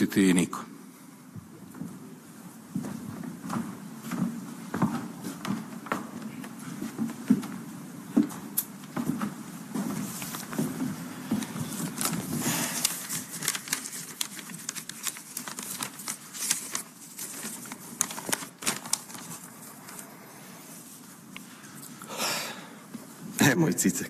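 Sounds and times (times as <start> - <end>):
paper rustling and crackling: 10.0 - 20.1.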